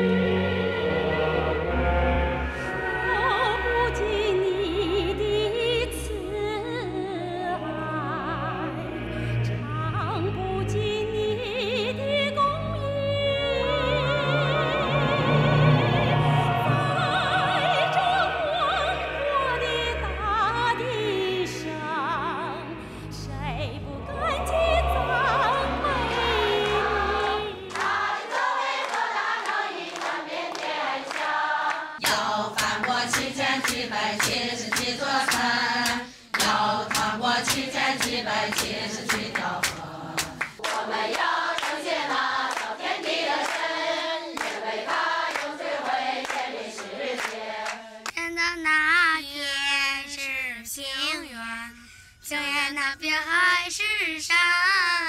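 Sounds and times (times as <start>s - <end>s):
heavy low accompaniment: 0.0s - 28.0s
woman singing into a microphone: 3.0s - 9.0s, 9.6s - 15.2s, 16.6s - 27.5s
crowd singing a hymn: 13.6s - 20.8s, 24.0s - 48.1s.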